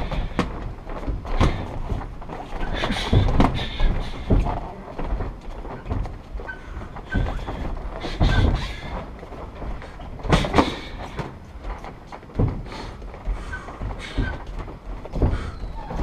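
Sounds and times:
feet moving on ring canvas: 0:00.0 - 0:16.0
thuds and slaps of strikes: 0:10.2 - 0:11.3.

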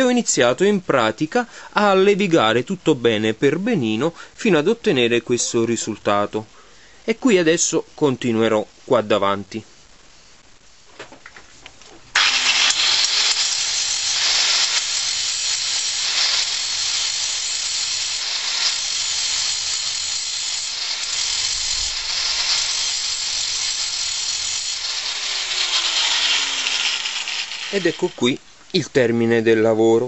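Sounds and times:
angle grinder grinding metal: 0:12.2 - 0:28.4.

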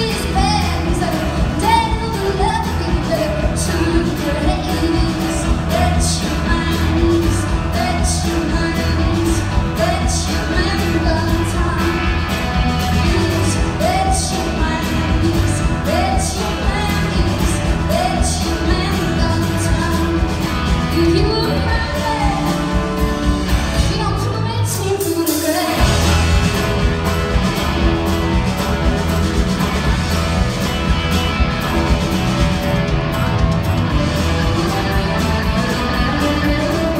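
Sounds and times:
woman singing lead: 0:00.0 - 0:26.3, 0:33.9 - 0:36.9
bass guitar: 0:00.0 - 0:36.9
drum kit: 0:00.0 - 0:36.9
electric guitars: 0:00.0 - 0:36.9.

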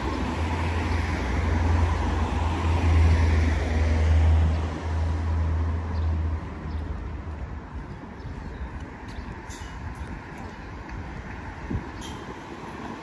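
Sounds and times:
car passing: 0:00.0 - 0:08.0.

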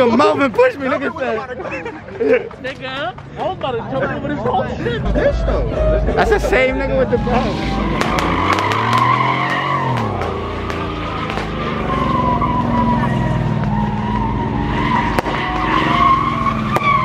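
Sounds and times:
car engine revving hard: 0:07.3 - 0:17.0
tyres squealing: 0:07.3 - 0:17.0
sharp crack: 0:07.9 - 0:11.7, 0:15.0 - 0:15.8, 0:16.6 - 0:17.0.

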